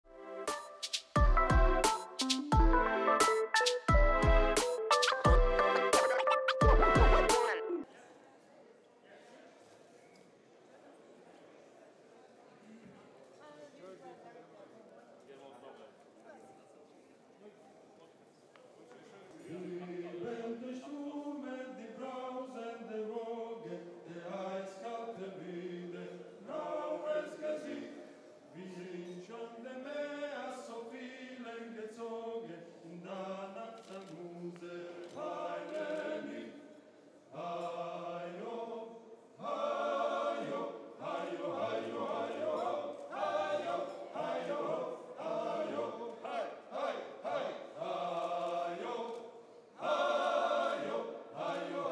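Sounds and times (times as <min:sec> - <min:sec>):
male choir singing a cappella: 0:19.4 - 0:51.9.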